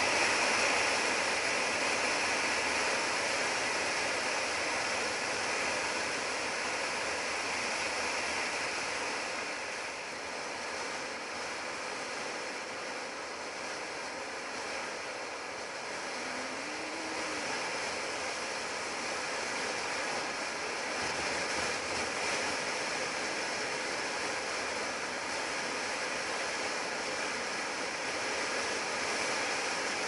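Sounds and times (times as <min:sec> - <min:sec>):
wind rush over microphone: 0:00.0 - 0:30.0.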